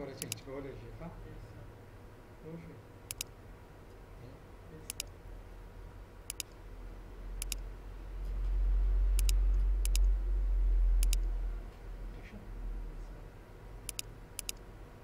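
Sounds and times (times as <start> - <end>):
computer mouse double clicks: 3.1 - 3.3, 6.3 - 6.6, 7.4 - 7.6, 9.2 - 10.1, 11.0 - 11.2, 13.9 - 14.6.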